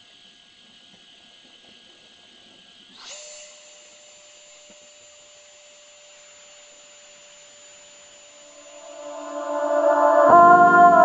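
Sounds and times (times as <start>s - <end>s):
music: 8.7s - 11.0s.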